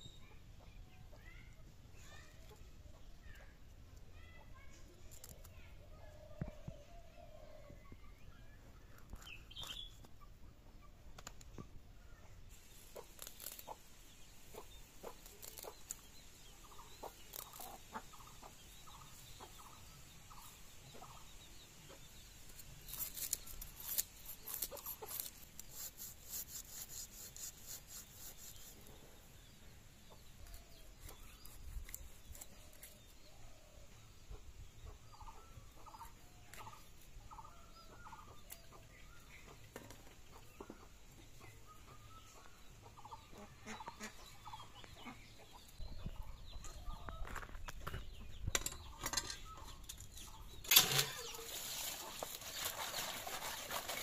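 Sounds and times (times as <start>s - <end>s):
chickens clucking: 8.6s - 22.4s, 28.6s - 54.0s
blade scraping fish scales: 22.6s - 28.9s, 50.7s - 54.0s.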